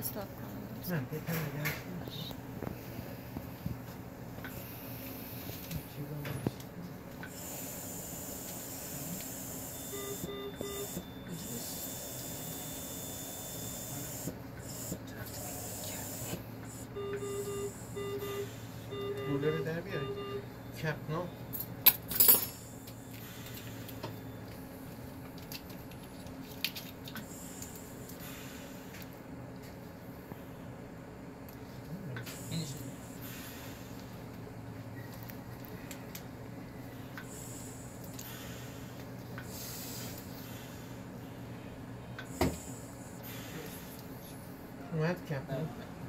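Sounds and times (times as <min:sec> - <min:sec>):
equipment humming: 0:00.0 - 0:46.0
hospital equipment hissing: 0:07.3 - 0:10.2, 0:10.8 - 0:18.9, 0:32.2 - 0:34.2, 0:37.2 - 0:41.1, 0:42.2 - 0:44.2
medical monitor beeps: 0:07.3 - 0:21.5.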